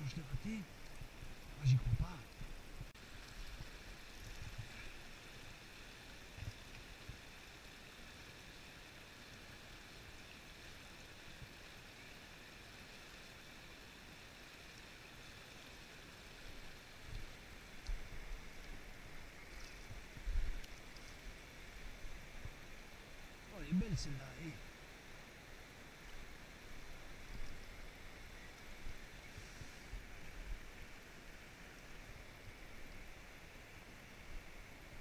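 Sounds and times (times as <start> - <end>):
water rushing over rocks: 0.0 - 35.0.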